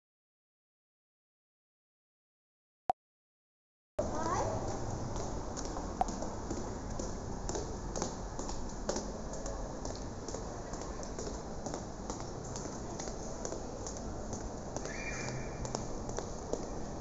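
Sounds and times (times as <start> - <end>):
footsteps on tiled floor: 4.0 - 17.0.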